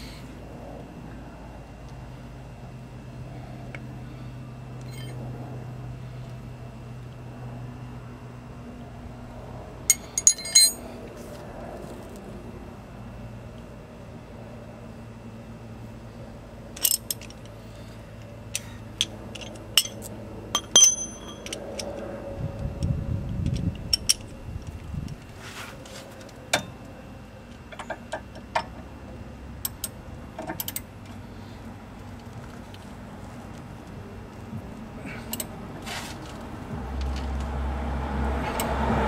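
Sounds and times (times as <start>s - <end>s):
hand tools clinking metal: 9.9s - 10.8s, 18.6s - 22.0s.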